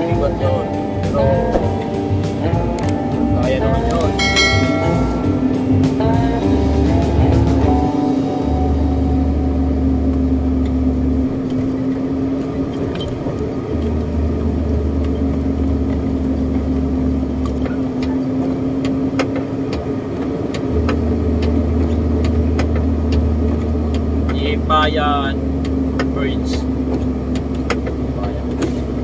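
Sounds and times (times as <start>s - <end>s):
diesel truck engine running: 0.0s - 29.0s
cab rattling and clicking: 7.1s - 29.0s.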